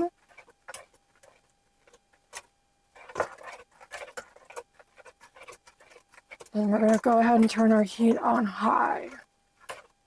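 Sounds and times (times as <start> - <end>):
utensil scraping and clicking in pot: 0.0 - 10.0.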